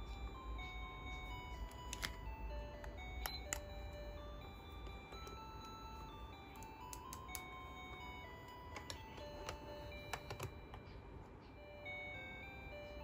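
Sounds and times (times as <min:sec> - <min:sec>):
slow melody of held notes: 0:00.0 - 0:13.0.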